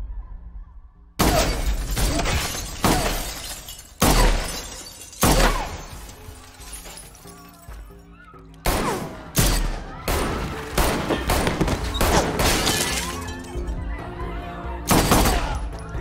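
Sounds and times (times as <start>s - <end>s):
shattering debris: 1.2s - 7.8s, 10.5s - 13.8s
loud gunshots: 4.0s - 5.8s, 8.6s - 12.8s, 14.9s - 15.6s.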